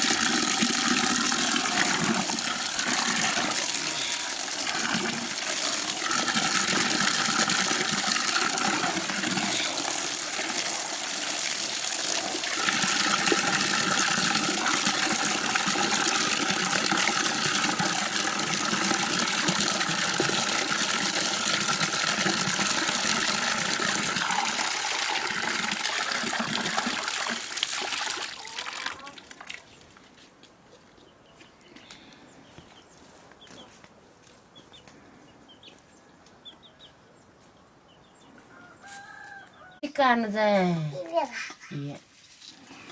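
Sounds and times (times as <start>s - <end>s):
tap water pouring into bucket: 0.0s - 29.6s.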